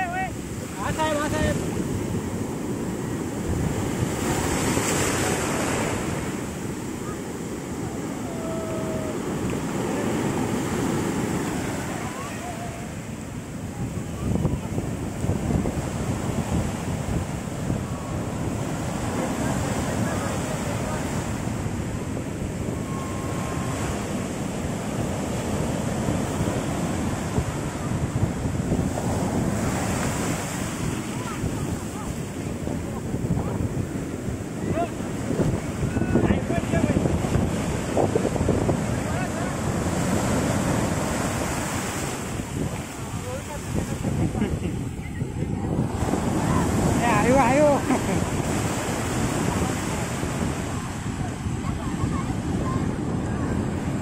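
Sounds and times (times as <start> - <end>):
sea waves washing onto beach: 0.0 - 54.0
wind buffeting microphone: 0.0 - 54.0.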